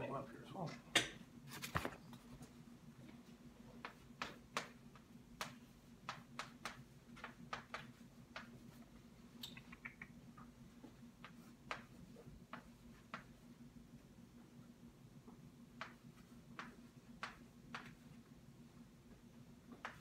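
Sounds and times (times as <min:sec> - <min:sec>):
low room hum: 0:00.0 - 0:20.0
chalk tapping on chalkboard: 0:03.8 - 0:08.9, 0:10.8 - 0:13.4, 0:15.8 - 0:18.1.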